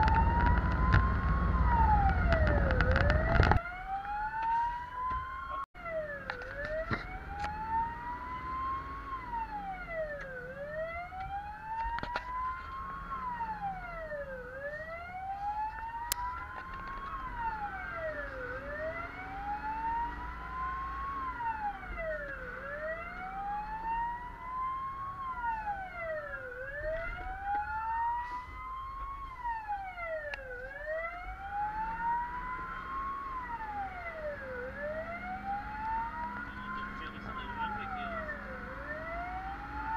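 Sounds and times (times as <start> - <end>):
engine and road rumble: 0.0 - 39.9
fire engine siren wailing: 0.0 - 39.9
higher second siren wailing: 0.0 - 39.9.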